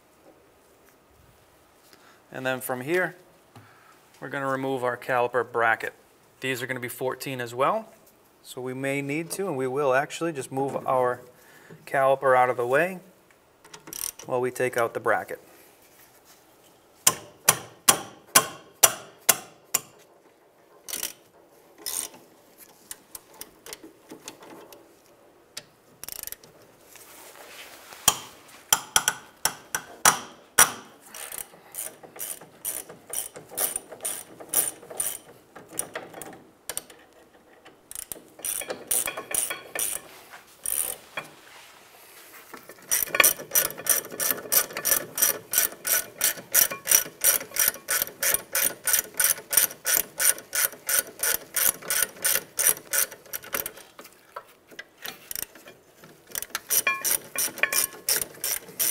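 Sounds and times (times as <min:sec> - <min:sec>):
hand ratchet clicking: 0:13.6 - 0:14.3, 0:17.1 - 0:20.1, 0:20.9 - 0:22.2, 0:25.6 - 0:26.5, 0:28.1 - 0:37.0, 0:37.8 - 0:41.3, 0:42.6 - 0:54.1, 0:55.0 - 0:58.9.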